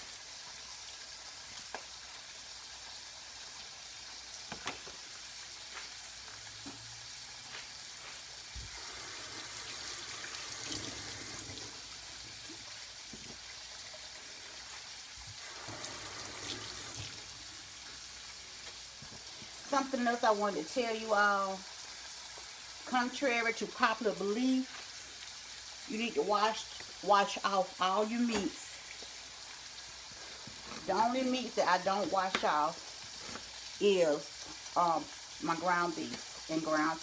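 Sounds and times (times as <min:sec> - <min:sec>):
meat sizzling in a frying pan: 0:00.0 - 0:37.0
kitchen tap running: 0:08.6 - 0:19.8.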